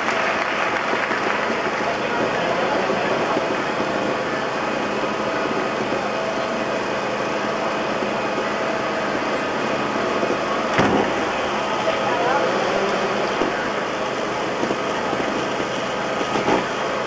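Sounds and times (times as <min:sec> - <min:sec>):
motorcycle landing thump: 0:10.7 - 0:11.4.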